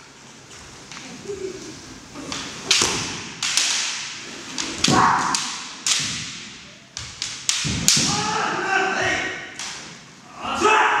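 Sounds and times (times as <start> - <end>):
bamboo swords clashing: 2.2 - 10.1
person shouting: 8.1 - 9.2.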